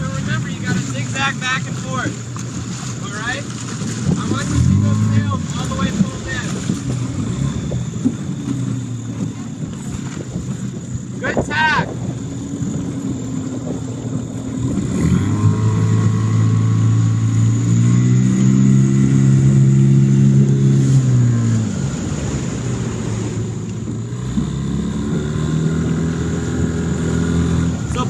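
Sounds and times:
outboard motor revving: 0.0s - 28.0s.

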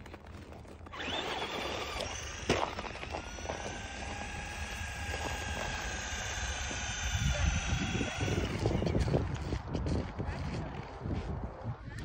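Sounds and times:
tyres churning snow: 0.0s - 9.6s
electric motor whining: 0.9s - 9.4s.

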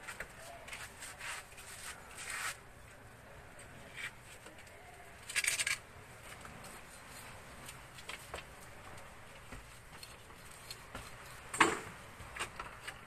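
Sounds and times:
bamboo slats scraping and rustling: 0.0s - 2.7s.

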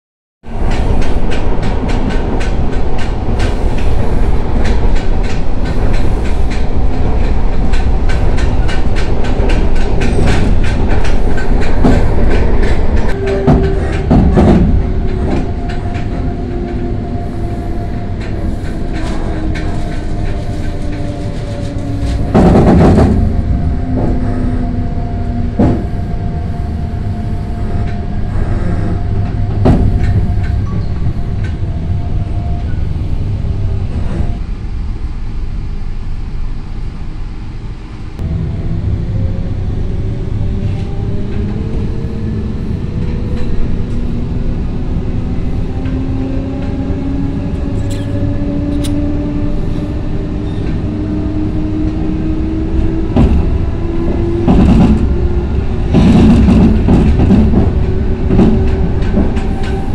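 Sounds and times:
train wheels clicking over rails: 0.5s - 24.6s, 40.5s - 59.9s.

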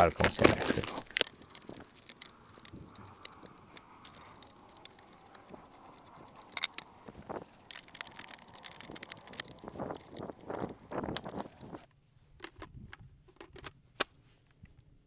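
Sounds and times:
chainsaw parts clicking: 0.2s - 11.8s, 13.3s - 13.7s.

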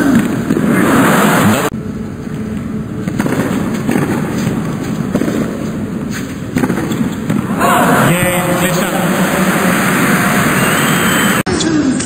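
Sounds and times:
tennis ball struck by rackets: 3.0s - 7.6s
crowd applause and cheering: 7.5s - 11.5s.

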